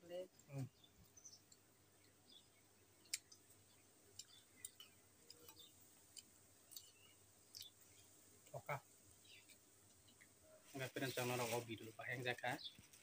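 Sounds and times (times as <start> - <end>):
soft chewing: 0.3 - 10.7.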